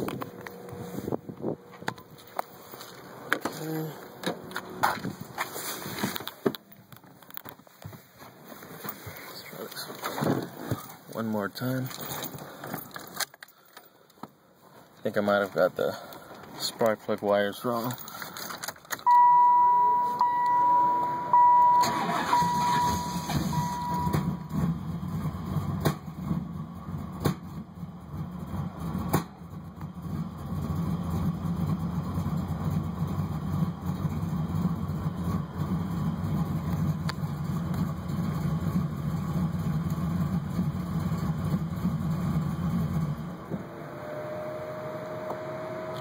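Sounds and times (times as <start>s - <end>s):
car engine cranking and idling: 0.0s - 46.0s
steady high tone: 19.1s - 24.4s.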